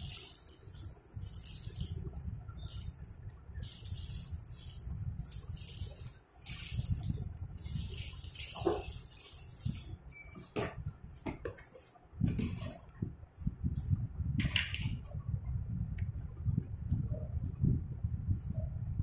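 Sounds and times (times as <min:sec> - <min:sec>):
slate pencils clattering: 0:00.0 - 0:10.0.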